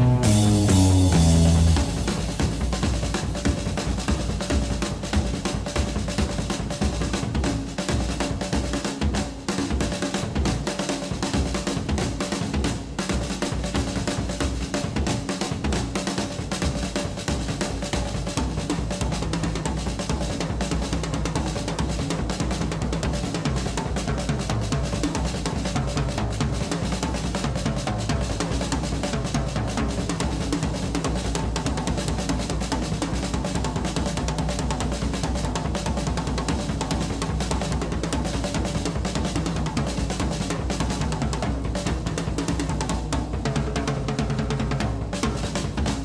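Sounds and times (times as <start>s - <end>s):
low bass: 0.0s - 2.6s
drum kit beat: 0.0s - 46.0s.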